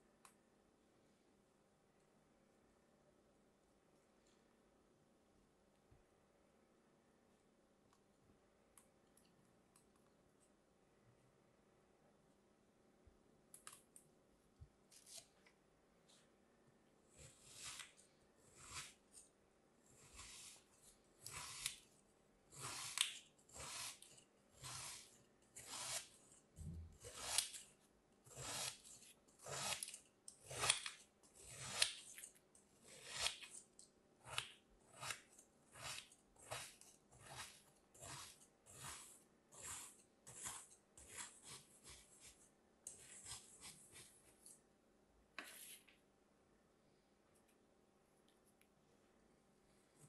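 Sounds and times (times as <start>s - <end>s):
metal blade scraping sand: 22.5s - 26.2s, 34.3s - 42.3s.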